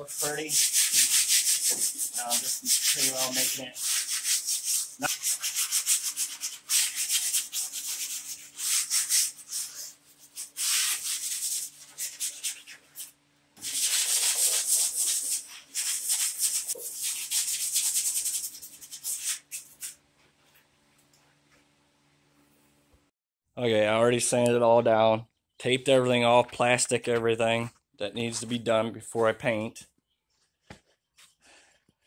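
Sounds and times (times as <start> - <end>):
sandpaper rubbing on metal: 0.0 - 20.0.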